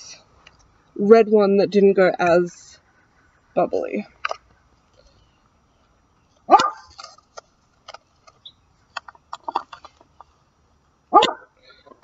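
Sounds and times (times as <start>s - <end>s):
small dog barking: 6.5s - 6.9s, 11.1s - 11.5s.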